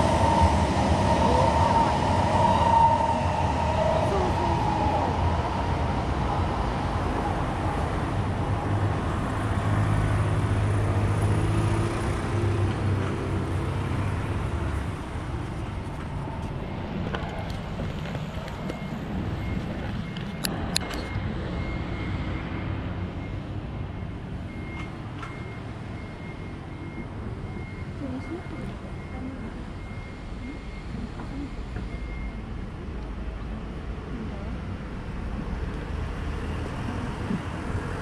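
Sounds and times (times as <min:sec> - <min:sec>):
electric train passing: 0:00.0 - 0:21.6
rail and street noise: 0:00.0 - 0:38.0.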